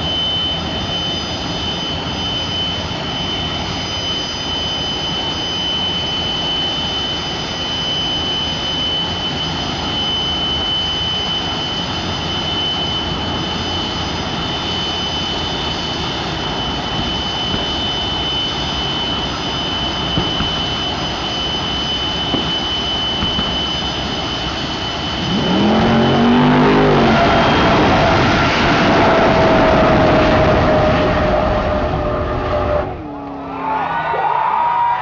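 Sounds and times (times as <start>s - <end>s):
jet turbine roar and whine: 0.0s - 35.0s
long falling tone: 0.0s - 35.0s
race car engine revving: 25.0s - 34.0s.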